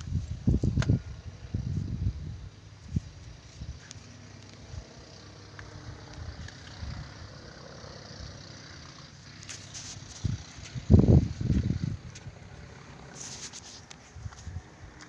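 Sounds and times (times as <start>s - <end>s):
faint outdoor background noise: 0.0s - 15.0s
high rustle: 8.9s - 14.7s.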